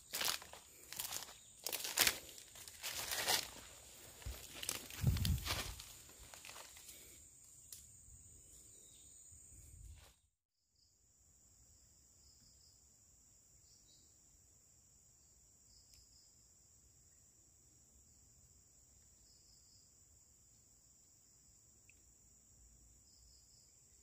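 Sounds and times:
dry leaves rustling and crunching: 0.0s - 6.8s
insects droning: 0.0s - 10.2s, 10.8s - 24.0s
faint insect chirps: 0.0s - 24.0s.

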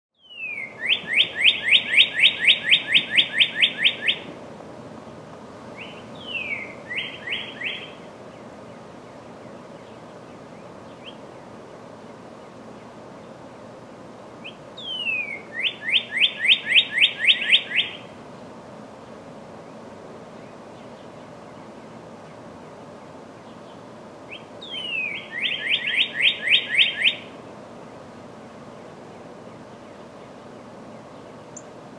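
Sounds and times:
bird singing whistled song: 0.2s - 4.3s, 5.8s - 8.0s, 10.6s - 11.2s, 14.4s - 18.1s, 24.3s - 27.3s.

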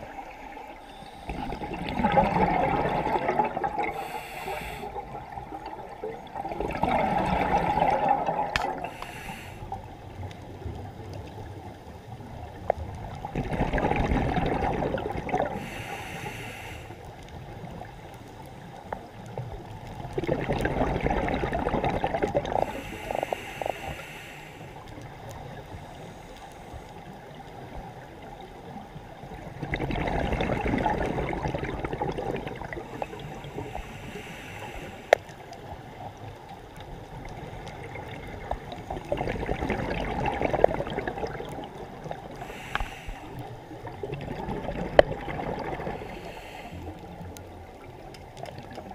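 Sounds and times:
exhaled bubbles underwater: 0.0s - 16.2s, 19.1s - 24.0s, 26.9s - 48.9s
regulator hiss: 3.9s - 5.0s, 8.9s - 9.7s, 15.6s - 17.0s, 22.7s - 24.8s, 33.0s - 35.2s, 42.4s - 43.4s.

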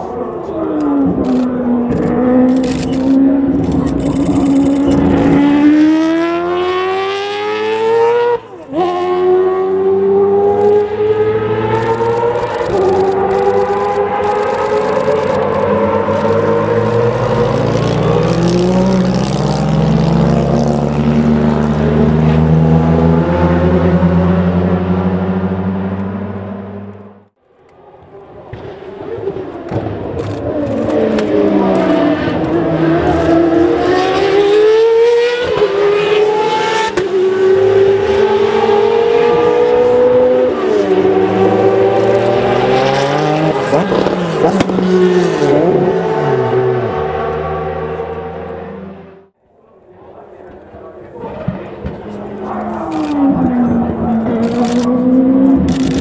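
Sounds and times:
race car driving off: 0.0s - 27.2s, 27.9s - 49.3s, 50.2s - 56.0s
race car passing at speed: 0.0s - 27.2s, 28.4s - 49.3s, 50.8s - 56.0s.

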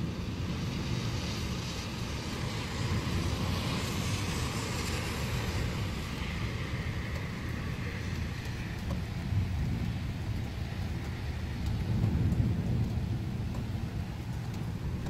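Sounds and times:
steady rain hiss: 0.0s - 15.0s
distant rolling thunder: 5.4s - 15.0s.

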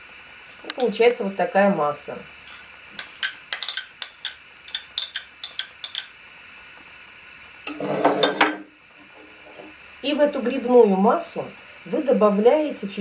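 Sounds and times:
dishes clattering: 2.5s - 6.1s, 7.7s - 8.7s
spoon clinking against a dish: 3.0s - 6.1s.

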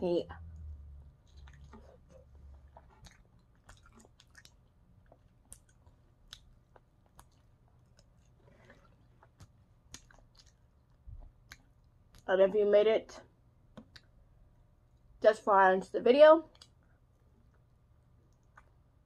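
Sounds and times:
chewing chicken wing: 1.2s - 12.3s.

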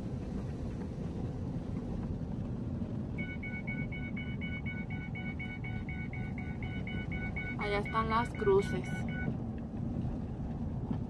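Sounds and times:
vehicle rumbling on dirt road: 0.0s - 11.0s
rapid dashboard warning beeps: 3.2s - 9.4s.

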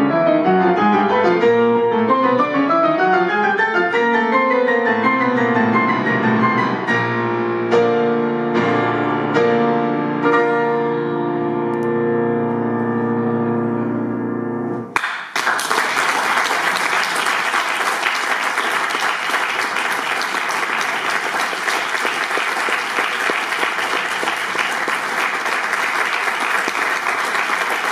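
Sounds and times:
audience applause: 15.0s - 27.9s.

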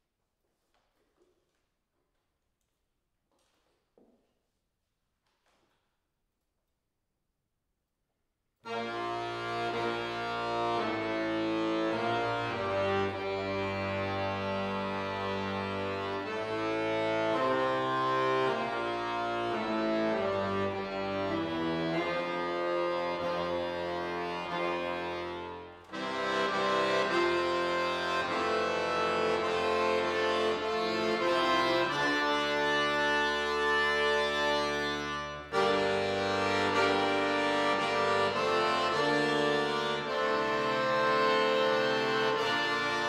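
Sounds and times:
accordion playing chords and melody: 8.6s - 43.0s.

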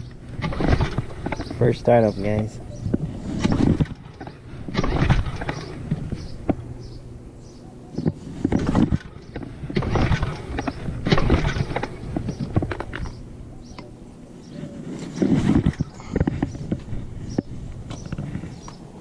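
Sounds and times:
outboard motor pull-starter whirring: 0.0s - 2.1s, 2.9s - 7.0s, 8.4s - 13.2s, 15.2s - 18.5s.

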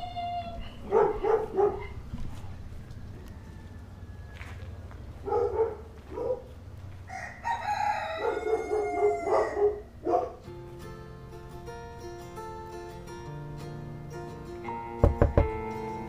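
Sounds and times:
rooster crowing: 2.4s - 4.9s, 7.0s - 9.8s
light plucked music: 10.4s - 16.0s.

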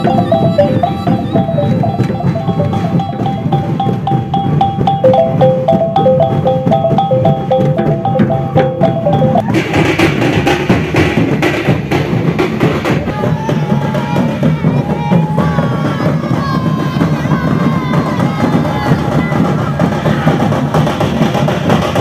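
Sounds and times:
pitched melody: 0.0s - 10.1s
big drums loud and dense: 0.0s - 22.0s
low drumming: 0.0s - 22.0s.

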